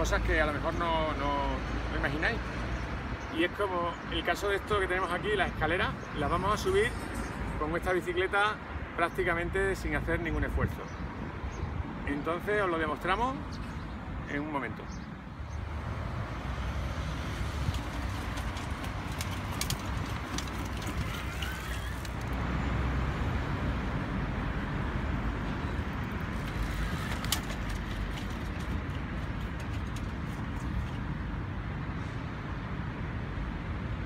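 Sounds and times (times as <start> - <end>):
low traffic rumble: 0.0 - 34.0.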